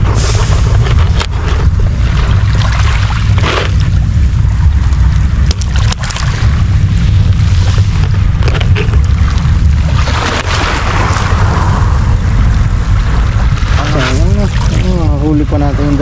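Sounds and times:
wind buffeting microphone: 0.0 - 16.0
waves on pebble shore: 5.7 - 12.2.

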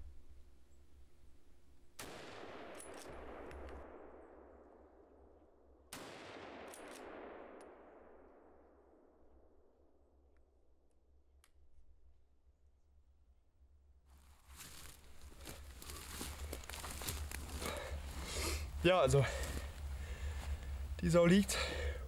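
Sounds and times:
rifle shots with rolling echo: 2.0 - 9.6.

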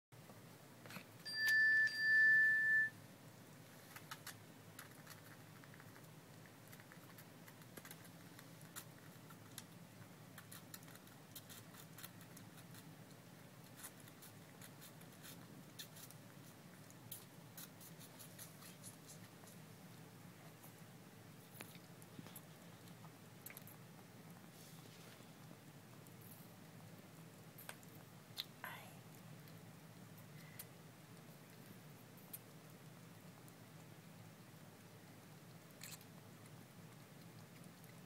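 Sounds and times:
high-pitched beeps: 1.3 - 2.9
baby squirrel sucking milk: 3.1 - 38.0.

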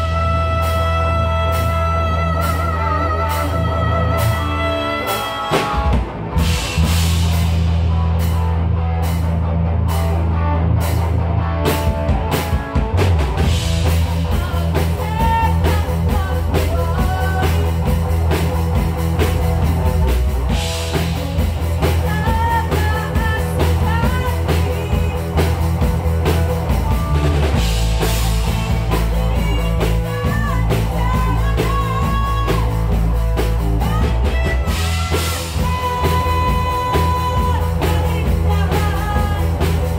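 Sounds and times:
person singing: 0.0 - 6.0, 14.1 - 18.0, 21.8 - 25.7, 28.5 - 33.0, 33.7 - 39.9
rock band playing: 0.0 - 39.9.

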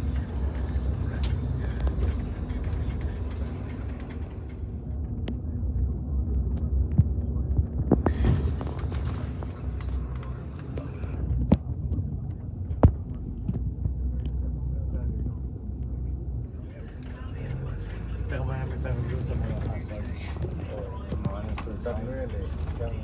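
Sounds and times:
sharp clicks and rattles: 0.0 - 14.4
vehicle engine and road rumble: 0.0 - 23.0.

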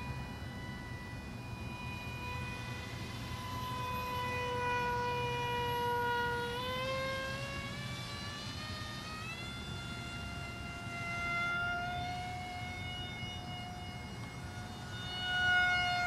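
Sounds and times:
model plane motor whine: 0.0 - 16.0.

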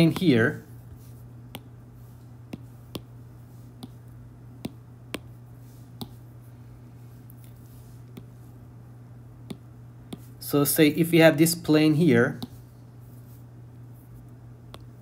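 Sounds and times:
low steady hum: 0.0 - 15.0
stylus tapping glass screen: 2.5 - 3.2, 4.6 - 5.4.

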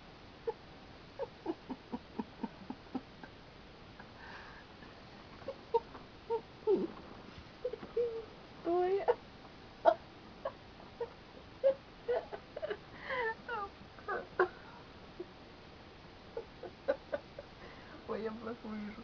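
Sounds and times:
person stifling laughter: 1.2 - 3.3, 9.9 - 14.6.

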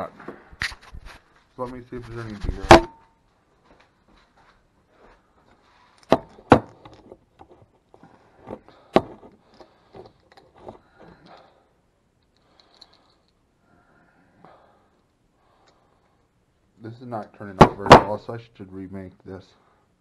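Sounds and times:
small objects clicking and scraping: 5.8 - 11.5, 12.2 - 13.4.

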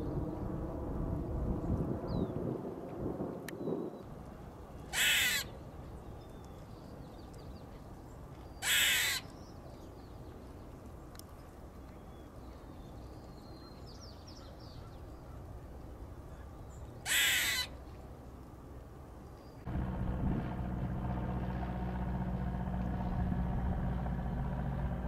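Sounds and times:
squirrel alarm calls: 4.9 - 5.5, 8.6 - 9.3, 17.0 - 17.7.

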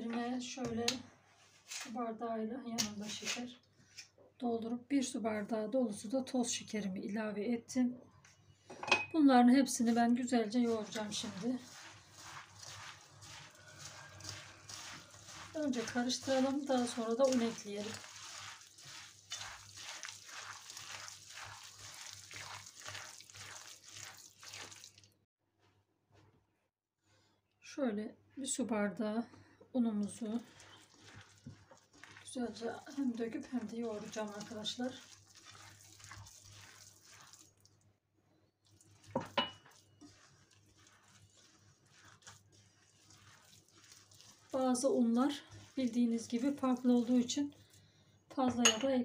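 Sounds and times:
hand squishing wet cookie mixture: 9.5 - 25.2, 29.8 - 37.9, 38.5 - 48.5.

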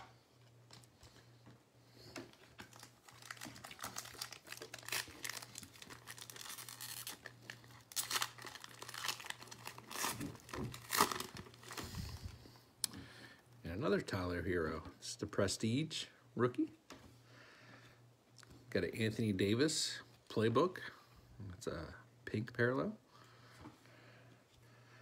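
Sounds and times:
foil wrapper crinkling and tearing: 2.3 - 12.3.

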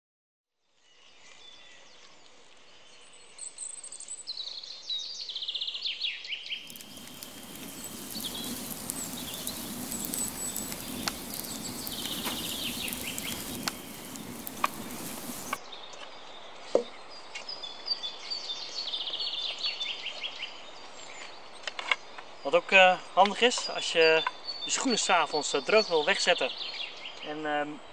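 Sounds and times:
songbirds singing: 0.7 - 27.9
wood fire crackling and popping: 6.5 - 15.6.

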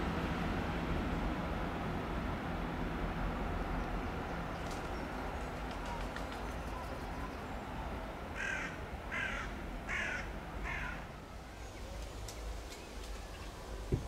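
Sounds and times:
crow cawing: 8.4 - 11.0.

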